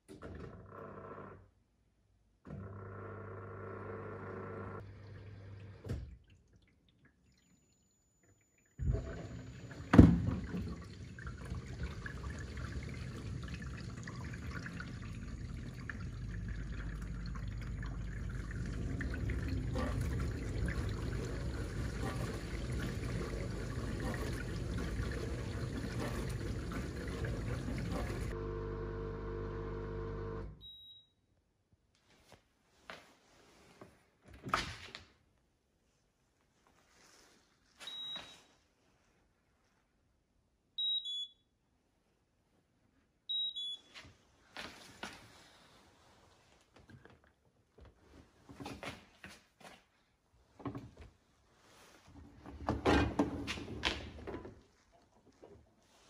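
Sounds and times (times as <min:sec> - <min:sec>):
water sloshing and spraying: 0:08.8 - 0:28.4
dishwasher pump humming: 0:08.8 - 0:30.5.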